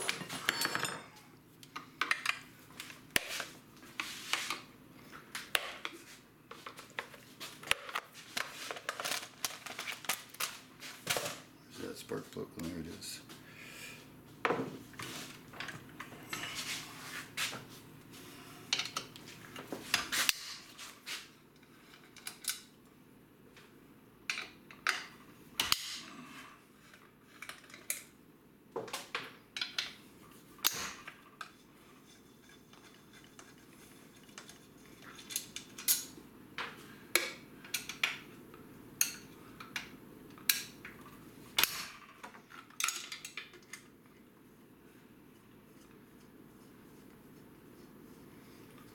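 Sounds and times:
metal tools clinking and scraping: 0.0s - 1.3s.

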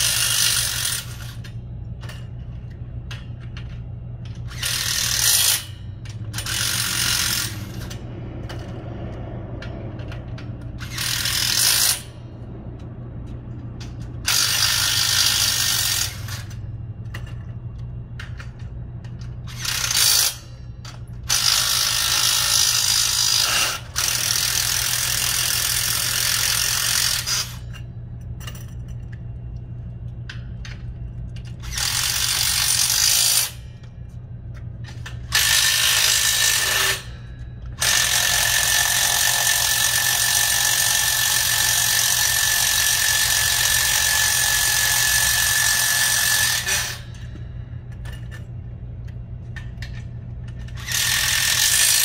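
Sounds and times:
constant low hum: 0.0s - 52.0s
power tool whining: 37.8s - 47.5s.

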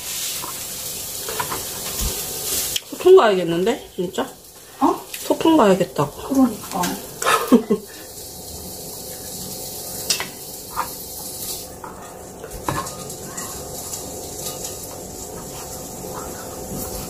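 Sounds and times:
food sizzling in frying pan: 0.0s - 17.0s.

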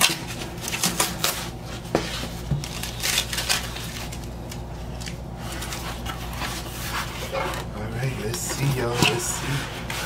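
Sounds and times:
cardboard and paper tearing: 0.0s - 4.3s.

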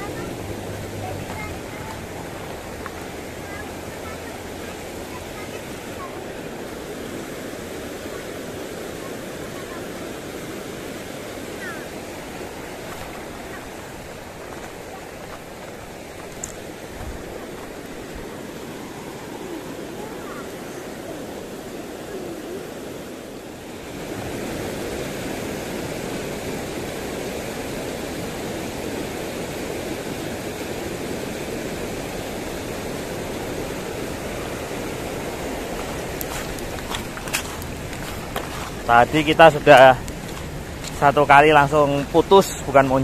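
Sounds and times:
river rushing over stones: 0.0s - 43.0s.

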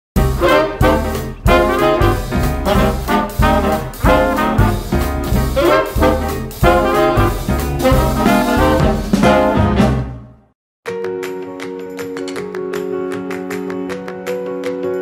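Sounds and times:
upbeat swing music with brass: 0.2s - 10.5s.

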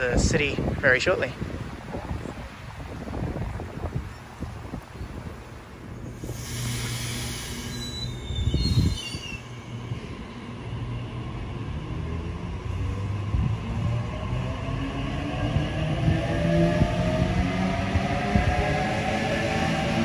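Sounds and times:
train rumble: 0.0s - 20.0s
electric train humming: 5.1s - 20.0s
wheel hissing: 6.0s - 10.7s
wheel squeals: 6.9s - 10.0s.

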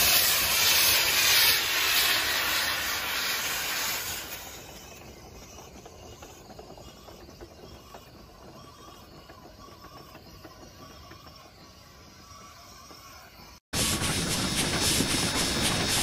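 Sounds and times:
steam hiss: 0.0s - 6.9s, 13.8s - 16.0s
locomotive running gear clanking: 4.1s - 16.0s.

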